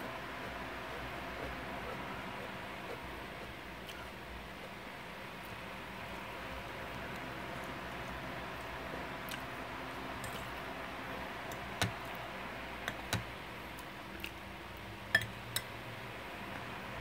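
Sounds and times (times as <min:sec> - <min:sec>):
fork clinking on plate: 0:15.1 - 0:15.7.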